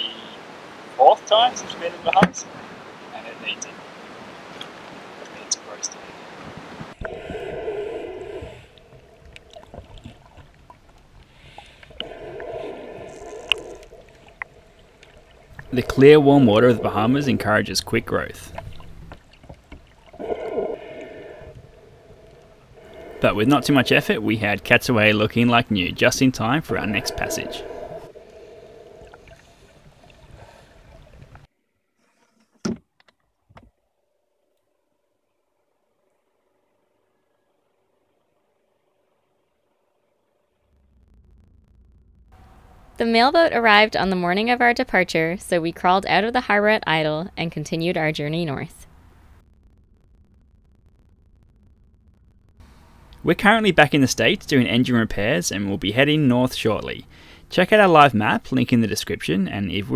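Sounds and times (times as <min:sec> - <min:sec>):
rushing water noise: 0:00.0 - 0:31.5
muffled underwater sound: 0:04.6 - 0:31.4.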